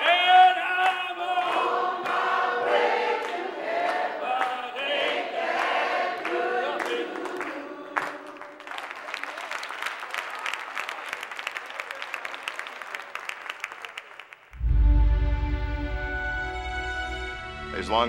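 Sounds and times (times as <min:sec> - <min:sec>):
applause: 0:00.0 - 0:02.3, 0:03.2 - 0:14.6
choir singing: 0:01.1 - 0:08.6.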